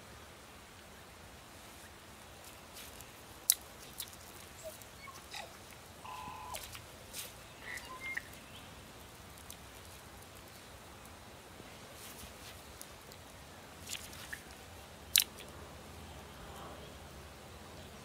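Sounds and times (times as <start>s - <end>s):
twig fire crackling: 1.7s - 15.6s
bird chirps: 4.6s - 6.6s, 7.5s - 8.7s.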